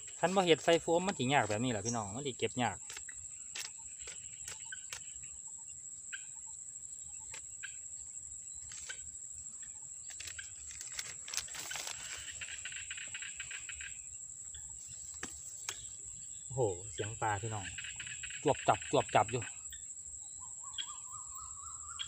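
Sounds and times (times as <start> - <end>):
close pulsing insect chirr: 0.0 - 22.0
insects chirring: 0.0 - 22.0
hands rustling in grass: 10.6 - 12.6.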